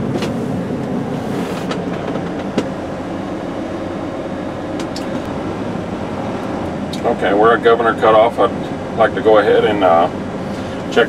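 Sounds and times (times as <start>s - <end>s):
diesel engine idling: 0.0s - 11.0s
air compressor running: 9.5s - 11.0s.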